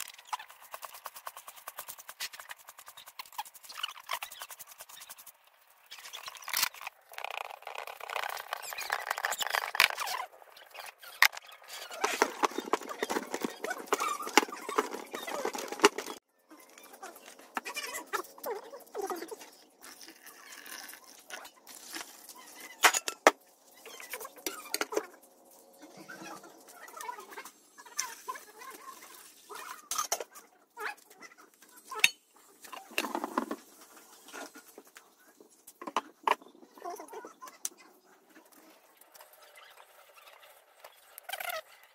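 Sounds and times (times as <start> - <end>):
hands kneading dough in metal pan: 11.6 - 16.2.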